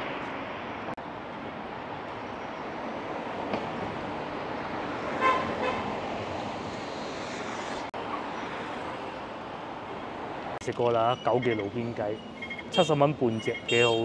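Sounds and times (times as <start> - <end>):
city traffic: 0.0 - 14.0
vehicle horn toots: 5.2 - 5.8, 13.7 - 14.0.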